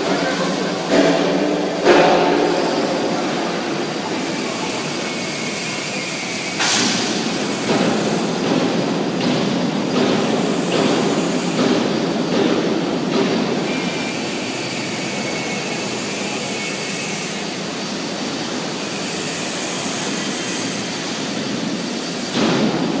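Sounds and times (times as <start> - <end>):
mechanical knocks and clanks: 0.0 - 4.8, 6.5 - 17.0.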